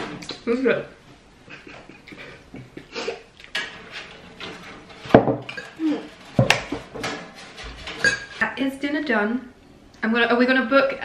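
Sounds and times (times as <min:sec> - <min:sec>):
crockery being handled: 0:03.5 - 0:08.6
sharp knocks: 0:06.4 - 0:07.2
fork clinking on a plate: 0:08.0 - 0:08.4.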